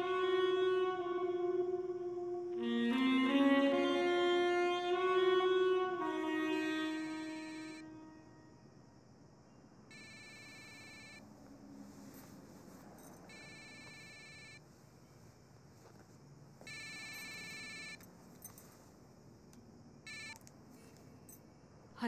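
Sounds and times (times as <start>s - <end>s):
mobile phone ringtone: 9.9s - 11.2s, 13.3s - 14.6s, 16.7s - 18.0s.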